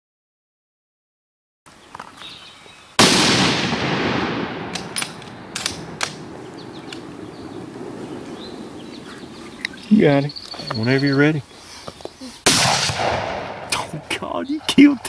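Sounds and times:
rifle shot echoing: 3.0s - 9.9s, 12.4s - 14.2s
sharp clicks: 4.6s - 7.1s
faint bird chirps: 6.4s - 12.4s.

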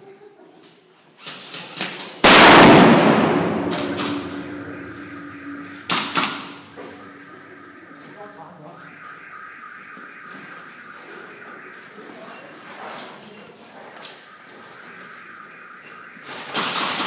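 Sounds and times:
sharp cracks: 2.0s - 12.0s, 13.8s - 17.0s
stun grenade loud bang: 2.2s - 7.5s.

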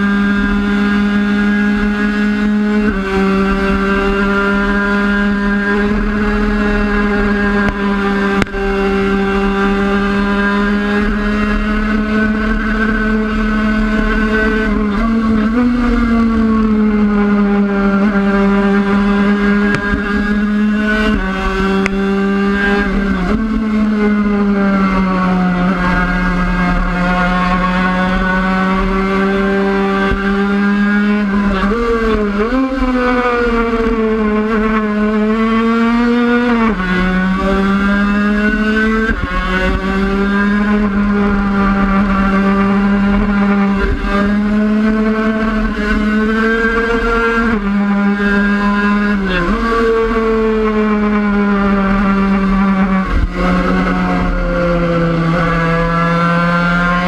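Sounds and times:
motorcycle engine at high revs: 0.0s - 57.0s.

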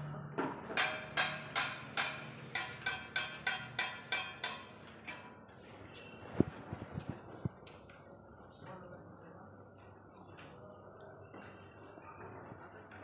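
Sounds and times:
hammer striking metal: 0.7s - 5.3s.

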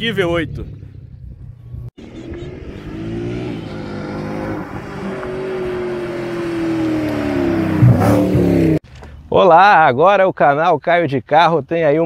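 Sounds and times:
car engine and exhaust: 0.0s - 9.3s.

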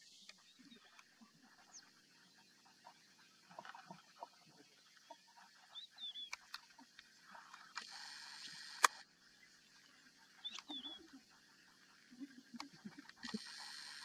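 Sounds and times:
short chirping call: 10.4s - 11.1s.

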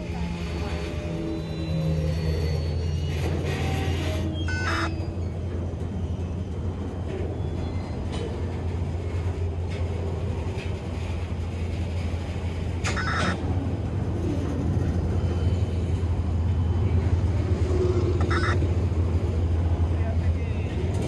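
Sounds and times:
freight train rumbling past: 0.0s - 21.0s
higher-pitched bursts: 4.5s - 4.9s, 18.2s - 18.6s.

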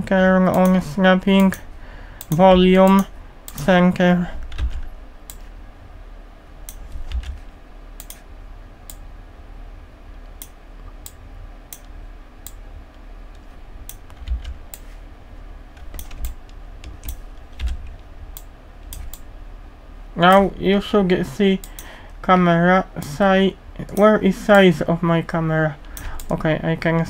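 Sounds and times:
low steady hum: 0.0s - 27.0s
keyboard keystrokes: 4.4s - 5.4s, 6.7s - 8.2s, 13.9s - 14.9s, 15.8s - 19.3s
mouse clicks: 8.0s - 8.2s.

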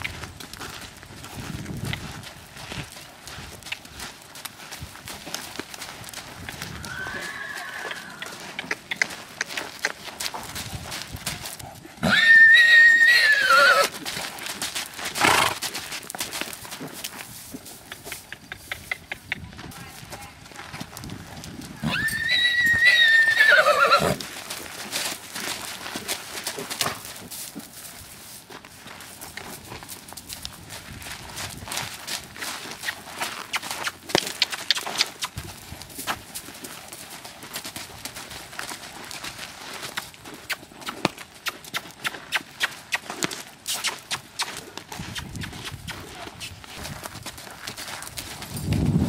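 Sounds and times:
hoofbeats on loose dirt: 0.0s - 49.0s
horse whinnying: 6.7s - 8.4s, 12.0s - 14.0s, 21.8s - 24.2s.

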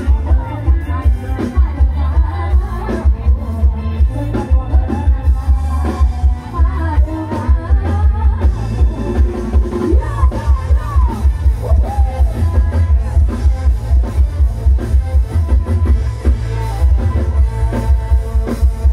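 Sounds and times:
person singing: 0.0s - 13.6s
band music over loudspeakers: 0.0s - 18.9s
heavy pulsing bass beat: 0.0s - 18.9s.

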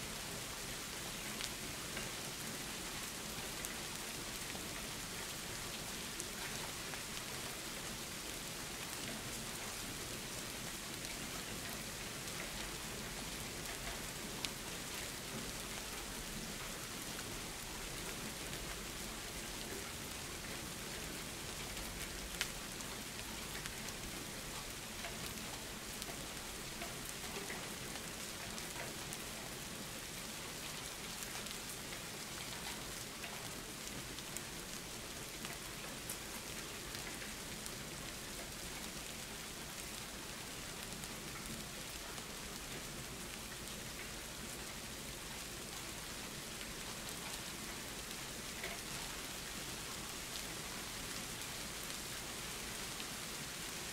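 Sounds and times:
steady rain hiss: 0.0s - 53.9s
raindrops ticking: 10.8s - 53.6s.

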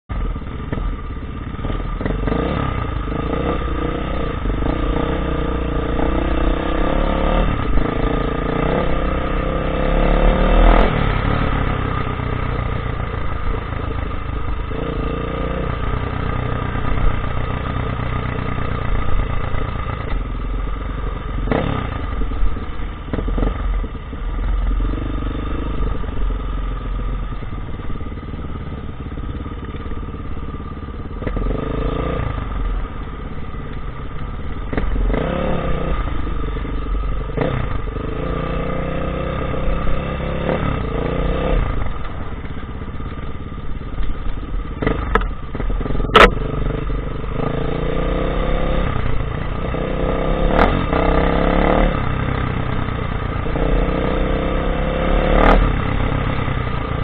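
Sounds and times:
low rumble from rough ground: 0.0s - 57.0s
dirt bike engine revving: 1.6s - 12.0s, 34.7s - 36.4s, 44.8s - 57.0s.

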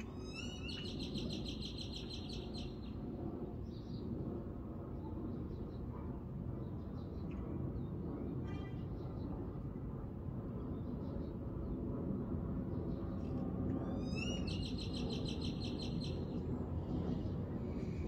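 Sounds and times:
bird trilling: 0.2s - 2.7s, 14.0s - 16.2s
low outdoor rumble: 16.1s - 18.0s.

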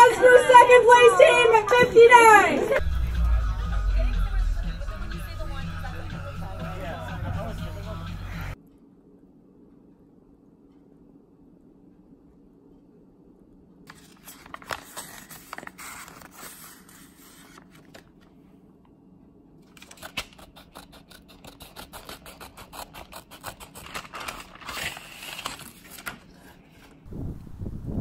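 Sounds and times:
scissors snipping paper: 19.7s - 27.0s.

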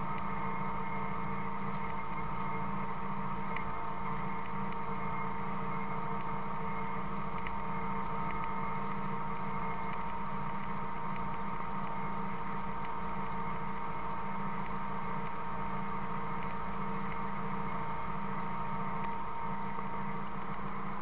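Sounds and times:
constant whine: 0.0s - 21.0s
machine mechanical drone: 0.0s - 21.0s
faint ticks: 1.7s - 2.6s, 3.5s - 5.2s, 5.9s - 15.5s, 16.2s - 20.7s.

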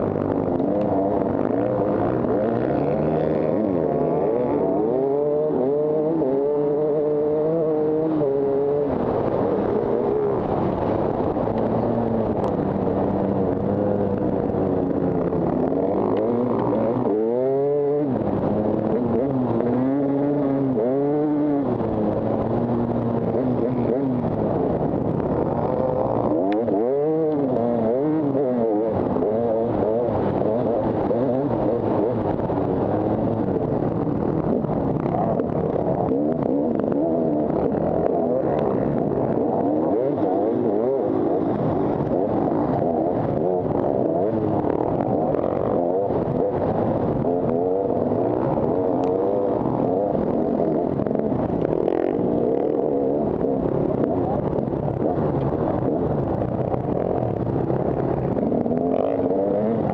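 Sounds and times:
two-stroke engine revving: 0.0s - 12.5s, 13.1s - 54.2s.

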